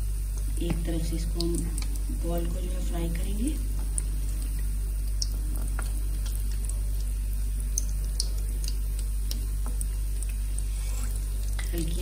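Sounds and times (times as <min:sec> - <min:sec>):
steady low hum: 0:00.0 - 0:12.0
oil crackling and popping: 0:03.6 - 0:12.0.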